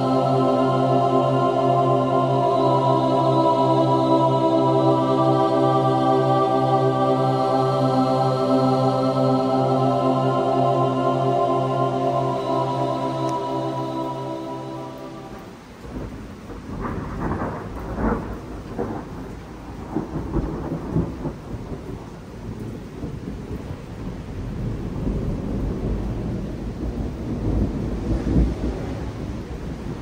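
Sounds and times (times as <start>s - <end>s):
steady rain: 0.0s - 30.0s
thunder rumbling: 9.4s - 30.0s
thunder cracks: 12.3s - 30.0s.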